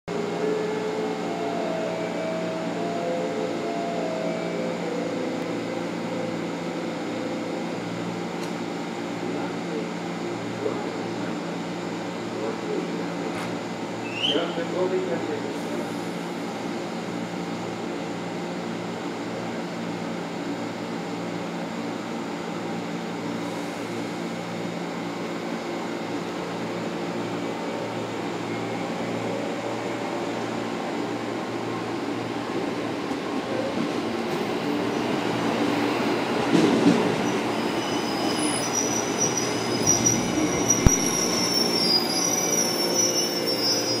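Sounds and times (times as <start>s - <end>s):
wheel and brake squealing: 37.2s - 44.0s
sharp knock: 40.9s - 41.2s.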